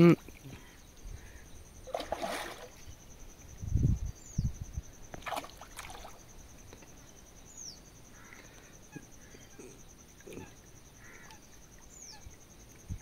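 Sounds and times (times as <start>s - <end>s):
fish splashing at water surface: 1.8s - 2.8s, 5.2s - 6.2s.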